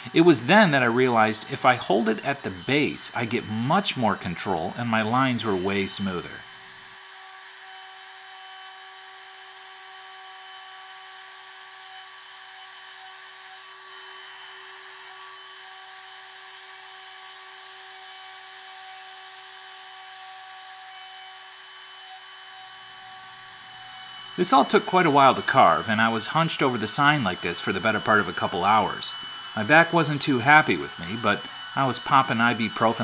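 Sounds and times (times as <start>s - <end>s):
router whining cutting wood: 0.0s - 33.0s.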